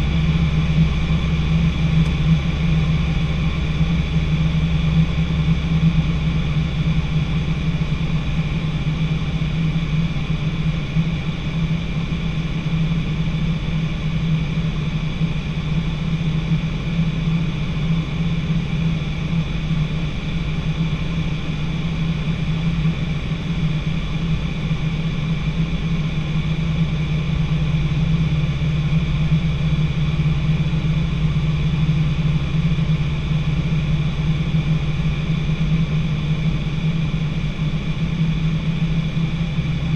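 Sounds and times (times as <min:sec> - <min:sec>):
aircraft engine and propeller drone: 0:00.0 - 0:39.9.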